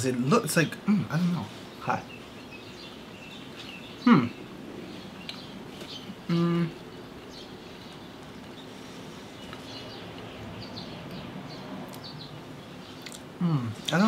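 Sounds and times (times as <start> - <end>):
person humming: 4.1 - 4.4, 6.3 - 6.8, 13.4 - 13.8
faint chewing: 7.7 - 10.4, 12.9 - 14.0.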